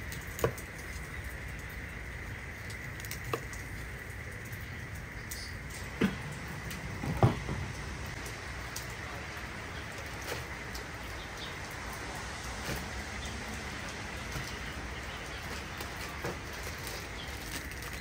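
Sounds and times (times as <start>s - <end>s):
plastic bag crinkling: 12.5s - 18.0s.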